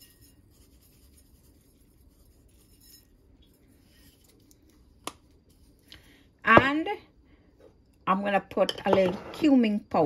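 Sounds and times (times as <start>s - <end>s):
kitchen handling sounds: 8.6s - 9.6s.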